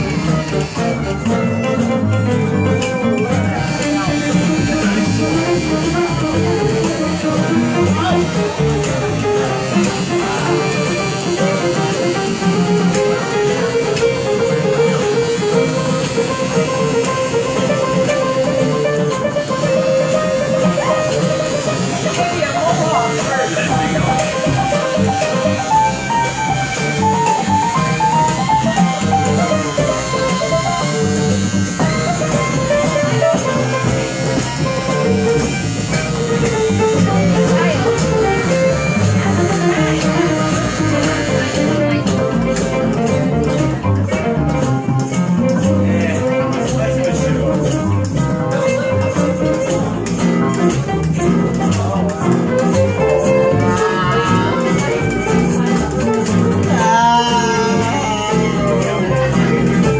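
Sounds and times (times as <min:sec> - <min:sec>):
live music with acoustic guitar: 0:00.0 - 0:59.9
person singing: 0:53.0 - 0:59.9.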